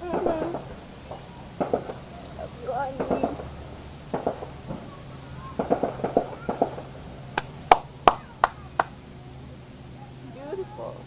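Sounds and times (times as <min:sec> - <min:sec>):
firecrackers popping: 0:00.0 - 0:10.0
firecracker bangs: 0:00.1 - 0:09.0.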